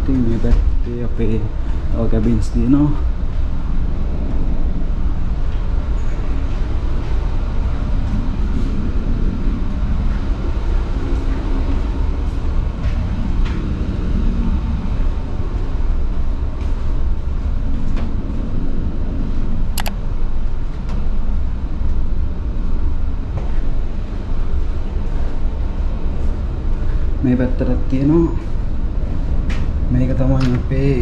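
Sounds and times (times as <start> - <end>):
ship machinery rumble: 0.0 - 31.0
sharp click: 19.8 - 20.0.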